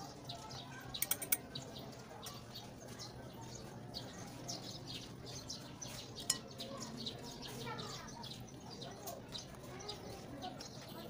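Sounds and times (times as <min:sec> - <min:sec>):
small birds chirping: 0:00.0 - 0:11.0
sharp click: 0:01.0 - 0:01.4.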